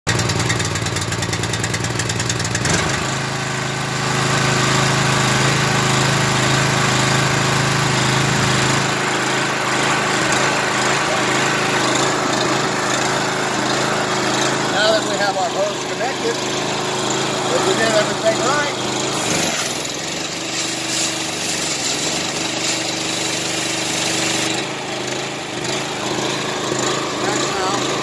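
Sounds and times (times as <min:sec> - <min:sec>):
pressure washer engine running: 0:00.1 - 0:28.0.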